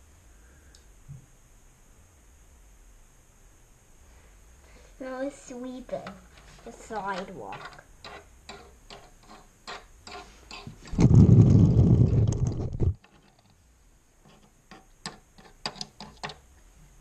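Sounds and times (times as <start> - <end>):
plastic toys clicking on wooden floor: 6.0 - 11.0, 14.3 - 16.4
close rubbing rumble: 10.8 - 13.4.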